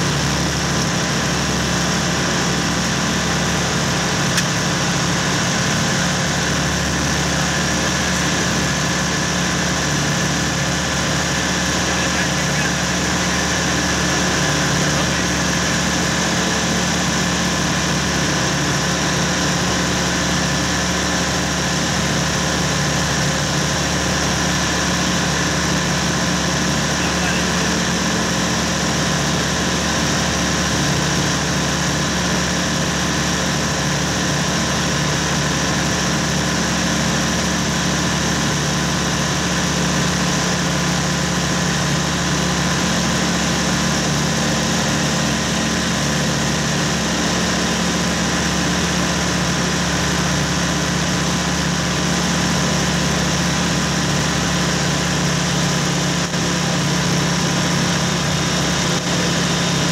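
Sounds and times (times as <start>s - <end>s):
light aircraft engine and propeller: 0.0s - 59.9s.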